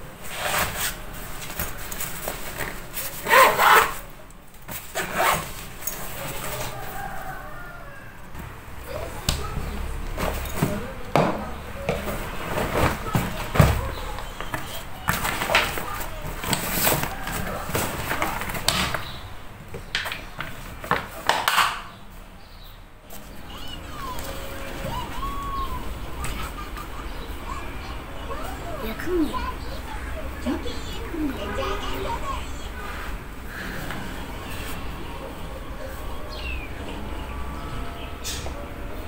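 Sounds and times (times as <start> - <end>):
zipper rasping shut: 3.2 - 4.0, 4.9 - 5.6
fabric backpack rustling: 4.7 - 6.9.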